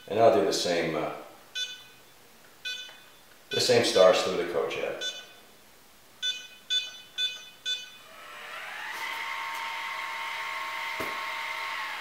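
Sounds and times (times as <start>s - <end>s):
hand controller beeps: 1.6s - 2.0s, 2.6s - 3.7s, 5.0s - 5.4s, 6.2s - 8.0s
motor whine: 7.9s - 12.0s.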